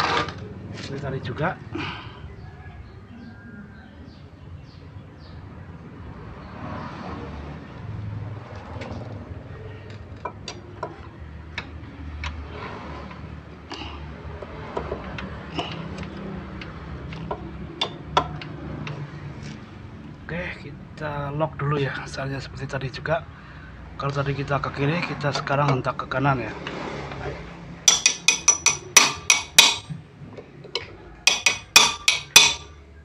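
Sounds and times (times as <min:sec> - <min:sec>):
metal clinks and taps: 0:27.9 - 0:30.0, 0:30.7 - 0:32.7.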